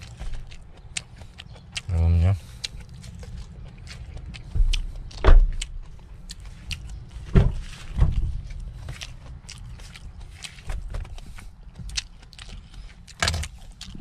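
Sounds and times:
dull thumps: 0:07.3 - 0:08.9.

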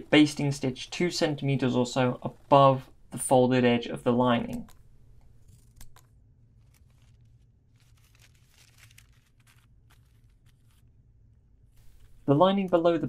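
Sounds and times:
cloth rustling: 0:05.3 - 0:13.0.

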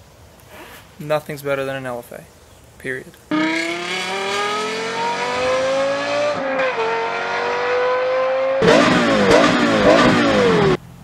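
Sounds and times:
car engine accelerating hard: 0:03.3 - 0:10.8.

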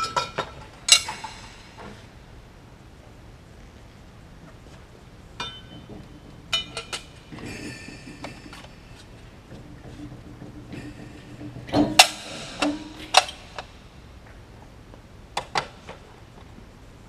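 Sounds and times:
metal tools and engine parts clinking: 0:00.0 - 0:01.8, 0:05.4 - 0:08.4.

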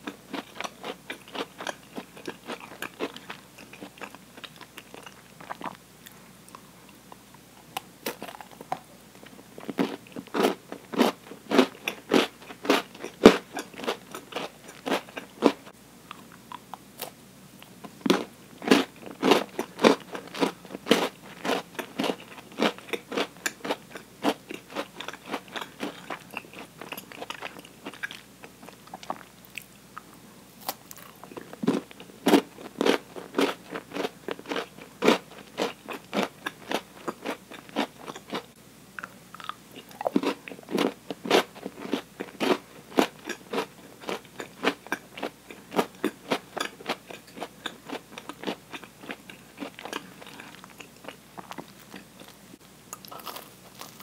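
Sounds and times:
chocolate crunching: 0:00.0 - 0:06.6, 0:07.7 - 0:17.1, 0:18.1 - 0:29.7, 0:30.6 - 0:54.0.

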